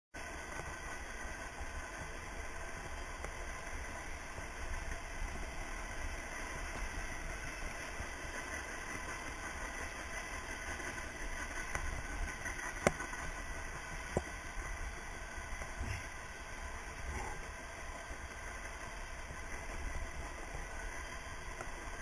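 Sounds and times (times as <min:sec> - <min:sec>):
bike tyres rumbling on dirt: 0:00.2 - 0:22.0.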